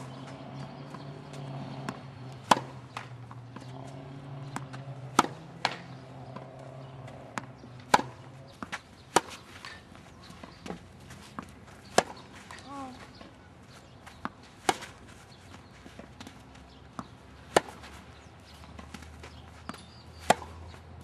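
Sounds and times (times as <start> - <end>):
racket hitting tennis ball: 0.0 - 13.2, 14.1 - 15.2, 15.8 - 20.8
ball bouncing on court: 0.2 - 9.4.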